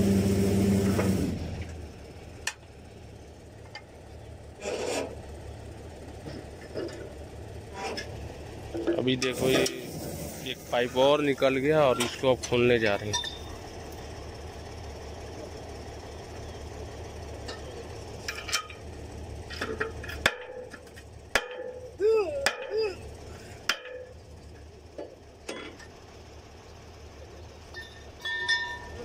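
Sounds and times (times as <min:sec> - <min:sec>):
engine humming: 0:00.0 - 0:29.0
metal clanks of wrenches on pipe: 0:11.9 - 0:13.5, 0:27.8 - 0:29.0
short voice-like call: 0:22.0 - 0:23.1.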